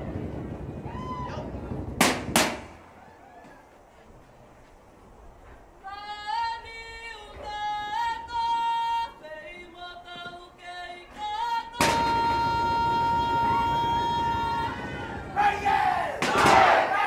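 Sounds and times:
group shouting together: 0:14.2 - 0:17.0.

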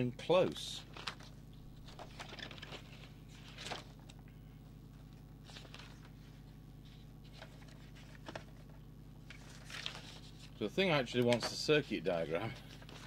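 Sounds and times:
manual pages turning: 0:00.4 - 0:13.0.

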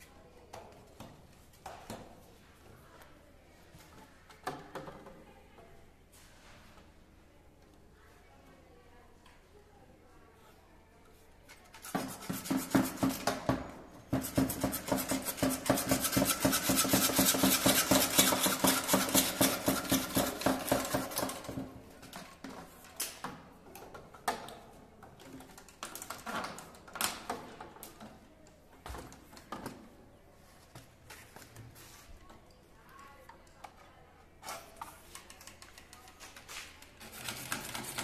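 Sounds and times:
hacksaw cutting plastic pipe: 0:11.7 - 0:21.5, 0:37.0 - 0:38.0.

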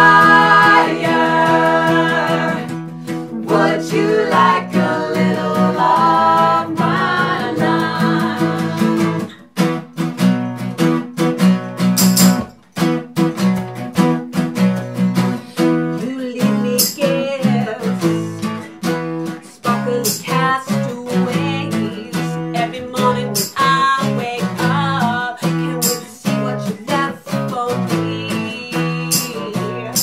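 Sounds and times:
woman singing: 0:00.0 - 0:09.3, 0:15.9 - 0:18.5, 0:19.4 - 0:30.0
acoustic guitars strummed: 0:00.0 - 0:30.0.

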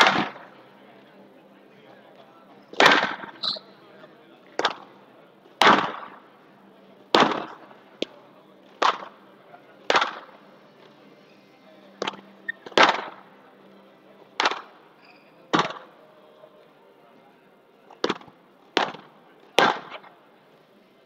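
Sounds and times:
racket hitting ball: 0:02.8 - 0:03.3, 0:14.4 - 0:14.7, 0:18.0 - 0:20.1.

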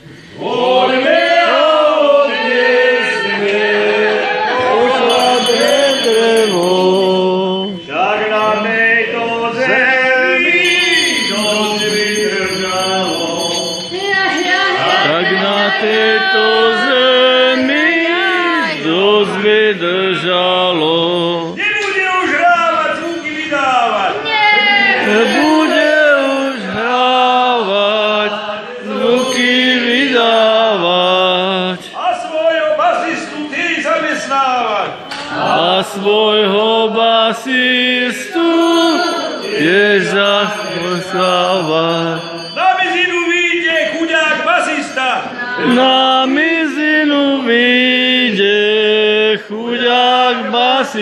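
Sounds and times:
voices singing slow chant: 0:00.0 - 0:21.6, 0:23.6 - 0:32.0, 0:34.8 - 0:42.6, 0:45.2 - 0:51.0.

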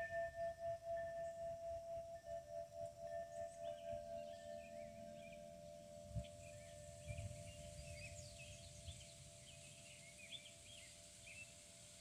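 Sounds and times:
wind chime ringing: 0:00.0 - 0:09.9
small birds chirping: 0:03.0 - 0:11.7.

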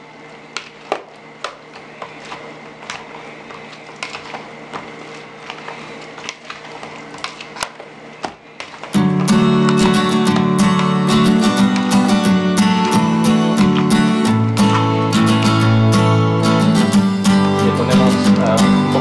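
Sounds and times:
strummed acoustic guitar music: 0:08.9 - 0:19.0.

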